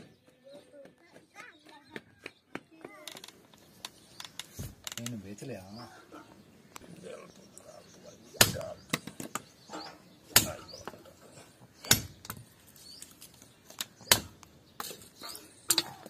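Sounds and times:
sword chopping wood: 8.4 - 8.7, 10.3 - 10.7, 11.8 - 12.4, 14.1 - 15.0.

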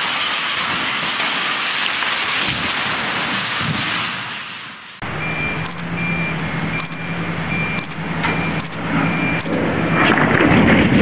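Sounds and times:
steady engine hum: 4.8 - 10.6
backup alarm beeping: 5.0 - 10.1
sharp cracks of steel tower: 9.5 - 11.0.

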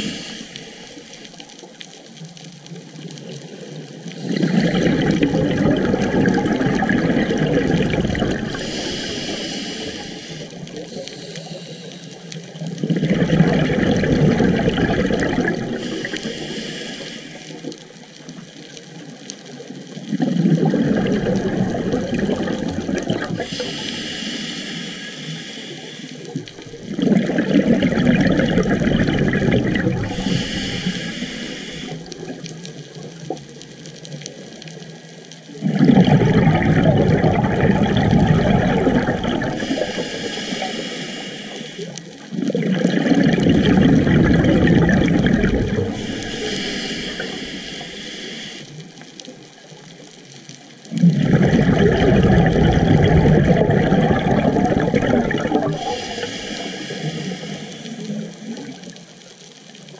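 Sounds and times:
regulator inhale hiss: 0.0 - 1.6, 8.4 - 12.6, 15.7 - 17.8, 23.3 - 26.7, 30.0 - 32.5, 39.5 - 42.3, 45.7 - 49.3, 55.7 - 58.4
exhaled bubbles rumbling: 0.0 - 11.6, 12.3 - 17.0, 17.6 - 24.2, 25.8 - 59.9.

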